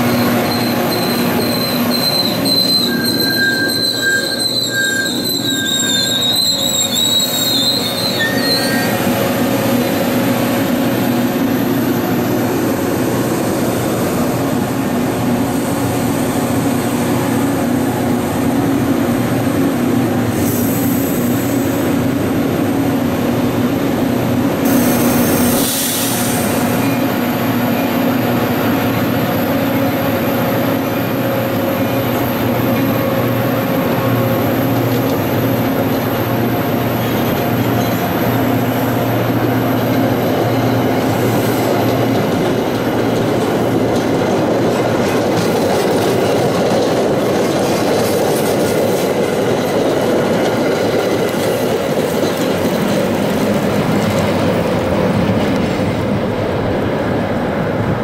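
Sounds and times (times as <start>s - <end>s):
wheels squealing: 0.0s - 9.3s
train wheels rumbling on rail: 0.0s - 58.0s.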